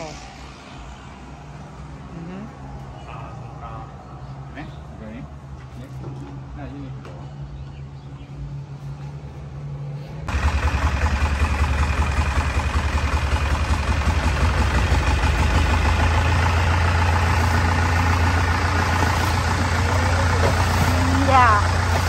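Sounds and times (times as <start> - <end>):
boat engine running: 10.3 - 22.0.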